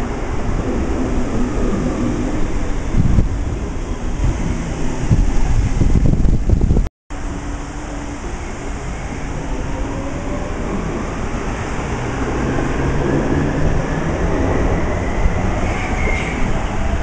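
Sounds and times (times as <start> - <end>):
wheels rumbling on rail: 0.0 - 17.0
high squeal: 14.8 - 16.8.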